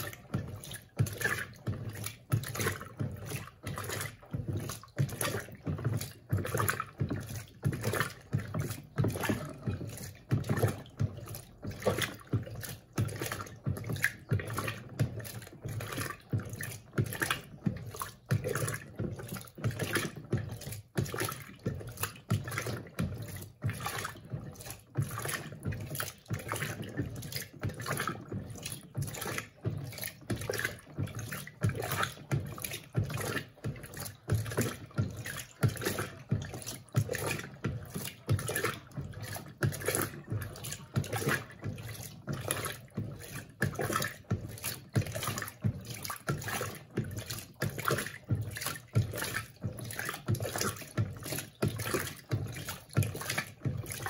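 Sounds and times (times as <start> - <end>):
washing machine sloshing: 0.0 - 54.0.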